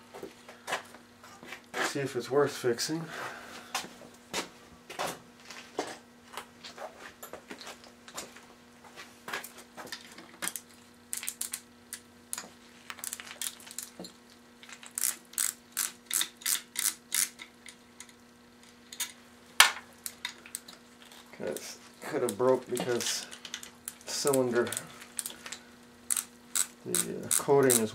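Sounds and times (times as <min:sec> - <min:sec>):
faint steady hum: 0:00.0 - 0:27.9
hand ratchet clicking: 0:14.7 - 0:18.2, 0:26.1 - 0:27.9.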